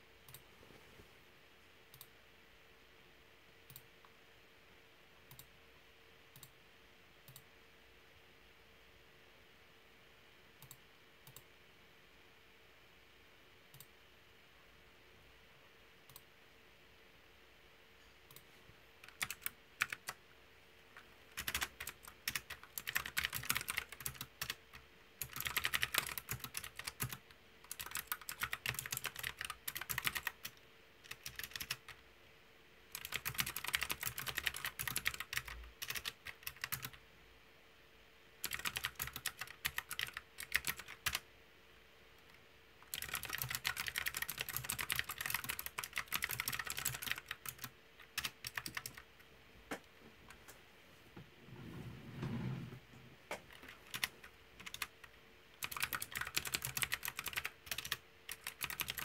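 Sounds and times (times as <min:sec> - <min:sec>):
mechanical keyboard typing: 0:19.0 - 0:20.2, 0:21.3 - 0:32.0, 0:32.9 - 0:37.0, 0:38.4 - 0:41.2, 0:42.8 - 0:49.1, 0:53.4 - 0:59.0.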